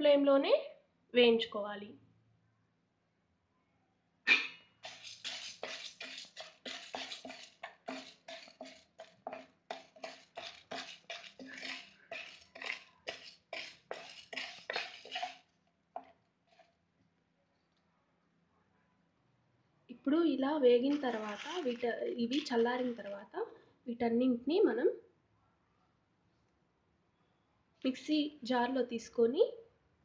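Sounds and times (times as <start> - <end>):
spatula scraping lentils in pan: 4.8 - 16.8, 20.8 - 23.2
wooden spatula knock: 4.9 - 15.4.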